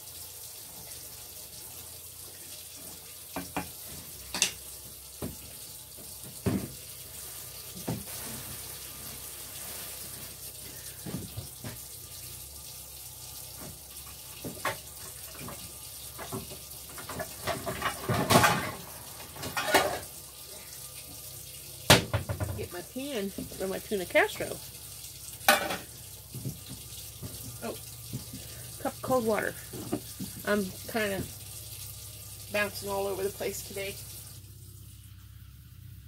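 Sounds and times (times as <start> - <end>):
pots and utensils clattering: 3.3 - 5.4, 14.4 - 20.2, 21.9 - 23.7, 25.4 - 28.7, 29.4 - 31.3
tap running into sink: 3.3 - 6.9, 13.5 - 20.1, 21.9 - 23.7, 25.4 - 28.6, 29.6 - 31.5.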